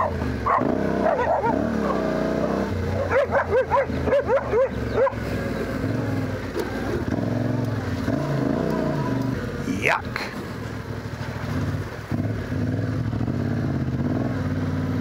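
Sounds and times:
dog barking: 0.0s - 2.1s, 2.8s - 5.2s
motorcycle engine running: 0.0s - 15.0s.

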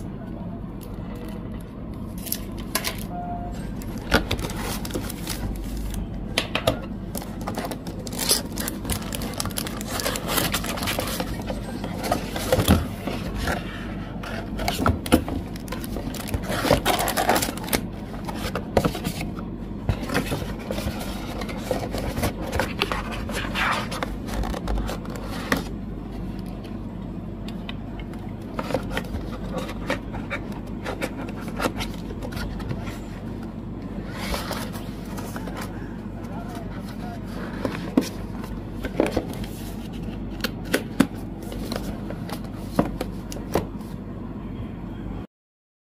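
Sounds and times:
steady low hum: 0.0s - 45.3s
packaging scraping and rubbing: 4.0s - 6.0s, 7.2s - 19.3s, 19.9s - 25.7s, 28.5s - 33.2s, 34.0s - 35.7s.

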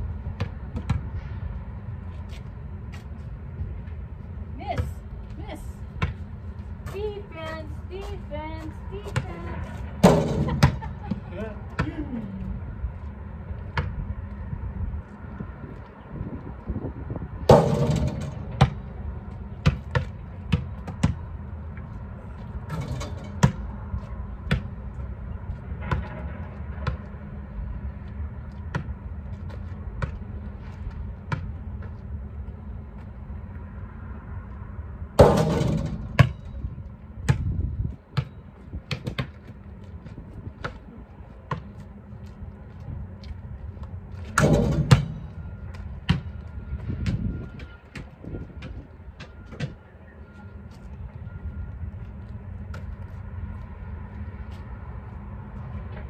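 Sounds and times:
basketball bouncing on asphalt: 0.1s - 1.2s, 4.7s - 12.1s, 12.9s - 14.4s, 17.4s - 27.3s, 27.9s - 33.2s, 35.2s - 49.9s, 52.0s - 53.7s
ball striking hoop and backboard: 0.4s - 1.1s, 6.0s - 6.3s, 10.0s - 12.0s, 17.5s - 18.9s, 19.6s - 21.3s, 22.6s - 23.7s, 25.8s - 26.2s, 28.6s - 29.0s, 31.2s - 31.9s, 35.2s - 36.5s, 37.2s - 39.4s, 41.5s - 41.7s, 44.3s - 49.8s.

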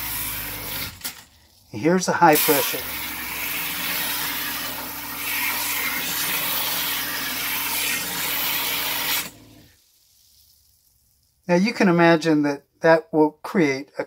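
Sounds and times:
water jet spraying into toilet bowl: 2.2s - 9.3s.

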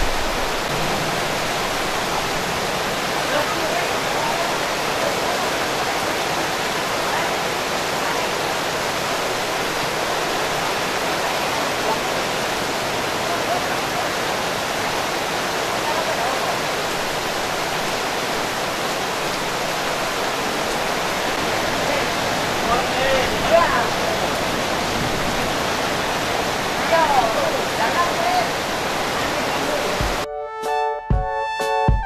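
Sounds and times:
heavy rain pouring: 0.0s - 30.3s.

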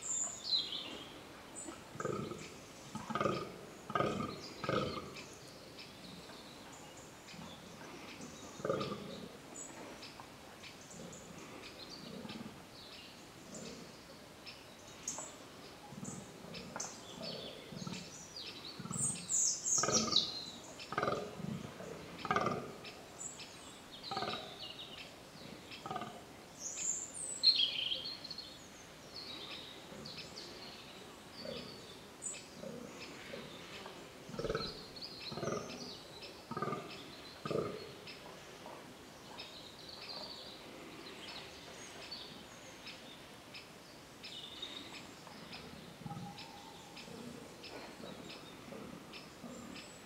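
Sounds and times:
small birds chirping: 0.0s - 50.0s
deer grunting calls: 2.0s - 5.2s, 7.9s - 9.3s, 19.8s - 20.3s, 20.9s - 22.7s, 36.5s - 36.8s.

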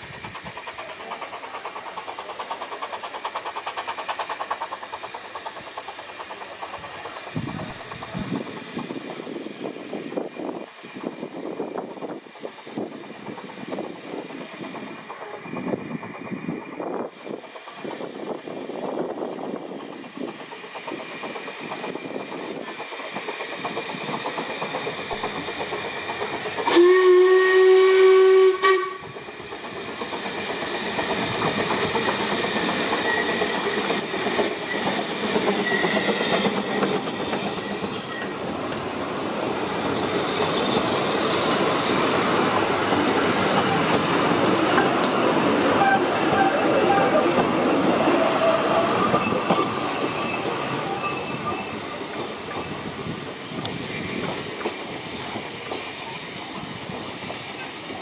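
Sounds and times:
hissing and squealing: 0.0s - 26.9s, 29.0s - 58.0s
steam locomotive exhaust beating: 0.0s - 58.0s
loud steam whistle: 26.7s - 29.2s, 45.7s - 47.4s.

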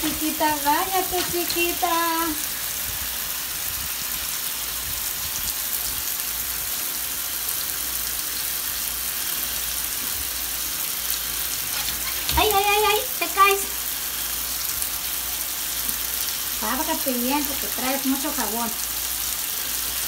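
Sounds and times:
water running into bathtub: 10.3s - 19.0s.

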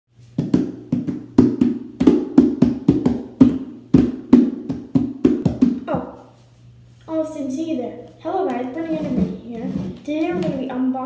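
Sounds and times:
hands drumming plastic bucket: 0.4s - 6.1s, 8.5s - 10.7s.

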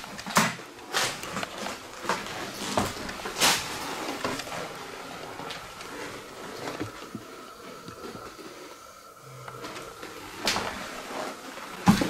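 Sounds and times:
footsteps on wooden floor: 1.1s - 8.4s.

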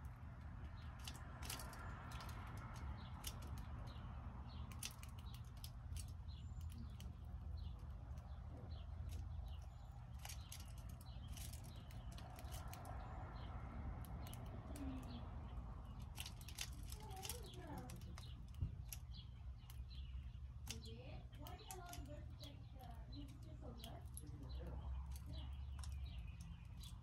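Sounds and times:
birds pecking at seed: 0.0s - 27.0s
steady low rumble: 0.0s - 27.0s.

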